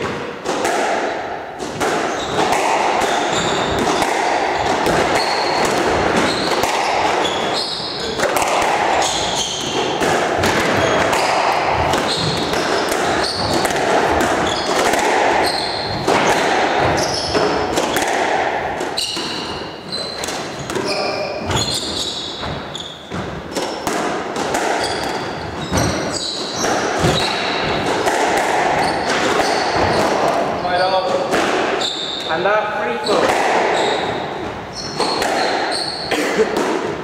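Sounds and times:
ball smacking off walls: 0:00.0 - 0:19.4
squash ball struck by rackets: 0:00.0 - 0:32.3, 0:33.1 - 0:37.0
shoes squeaking on wooden floor: 0:02.0 - 0:18.1, 0:18.7 - 0:36.6.

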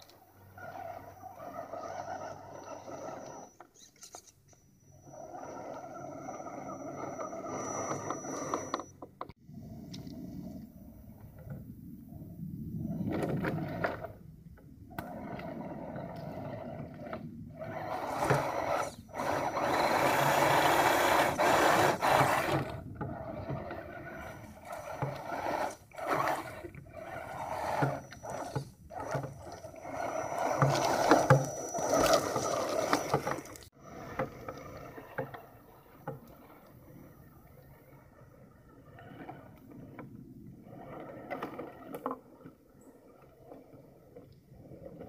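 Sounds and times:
toy car electric motor whirring: 0:00.0 - 0:09.0, 0:14.9 - 0:38.1.

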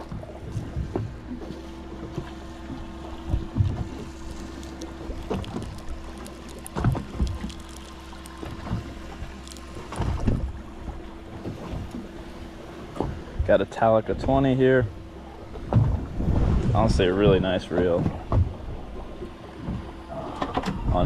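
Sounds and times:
boat engine hum: 0:00.0 - 0:21.0
wind on microphone: 0:15.7 - 0:17.4.

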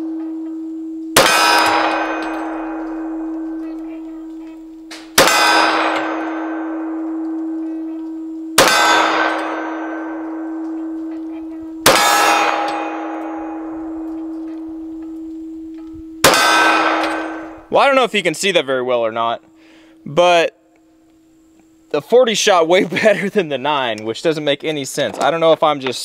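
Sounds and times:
steel target ringing: 0:01.1 - 0:19.4
pistol shots: 0:01.2 - 0:07.6, 0:08.6 - 0:11.0, 0:11.7 - 0:14.9, 0:16.2 - 0:17.7.

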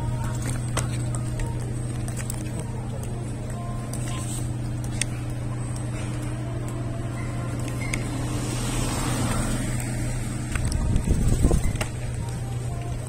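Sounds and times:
steady low hum: 0:00.0 - 0:13.0
street traffic noise: 0:00.0 - 0:13.0
heavy low rumbling: 0:04.5 - 0:13.0
vehicle passing: 0:07.0 - 0:11.8.

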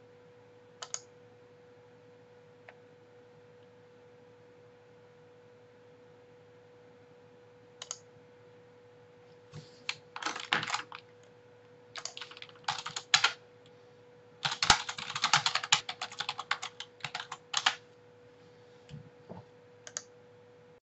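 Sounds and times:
faint steady hum: 0:00.0 - 0:20.8
typing on computer keyboard: 0:00.8 - 0:01.0, 0:09.9 - 0:11.1, 0:12.0 - 0:13.4, 0:14.4 - 0:17.8.

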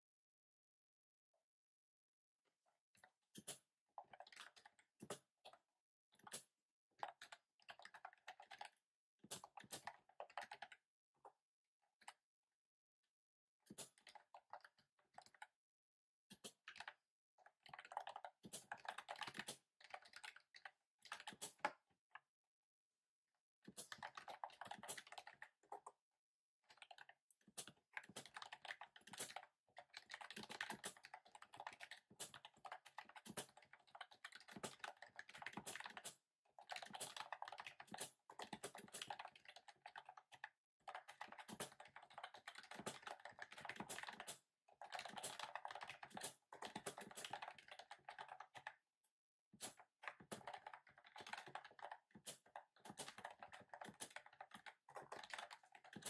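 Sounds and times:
fast keyboard typing clicks: 0:06.2 - 0:10.8, 0:17.6 - 0:21.7, 0:23.7 - 0:25.9, 0:26.7 - 0:48.8, 0:49.6 - 0:56.0.

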